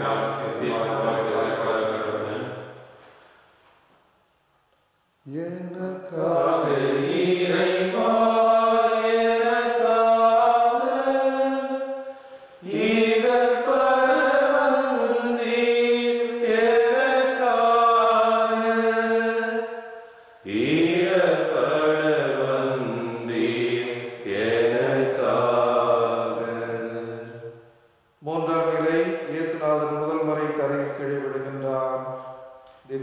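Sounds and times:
person singing a hymn: 0:00.0 - 0:02.4, 0:05.3 - 0:11.9, 0:12.6 - 0:19.7, 0:20.4 - 0:27.4.

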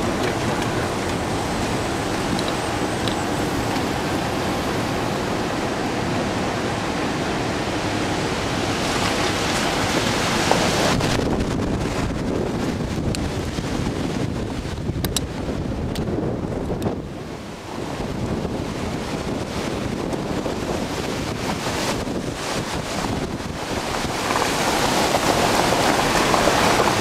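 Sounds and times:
car road and wind noise: 0:00.0 - 0:27.0
wind buffeting microphone: 0:00.0 - 0:27.0.

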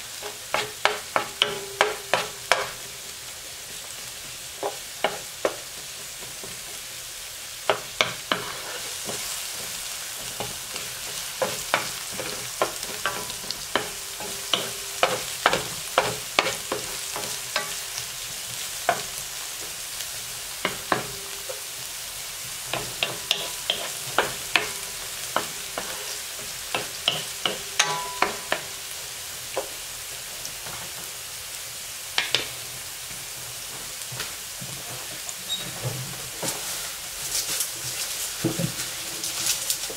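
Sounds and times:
onion sizzling in oil: 0:00.0 - 0:39.9
spatula scraping a pan: 0:00.1 - 0:03.0, 0:03.8 - 0:06.8, 0:07.6 - 0:21.8, 0:22.4 - 0:29.7, 0:36.4 - 0:39.9.

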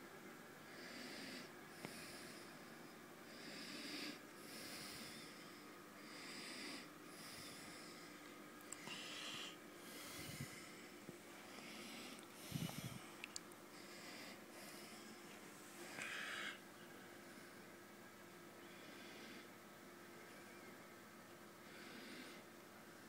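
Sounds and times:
faint steady hum: 0:00.0 - 0:23.0
slow soft breathing: 0:00.6 - 0:17.7.

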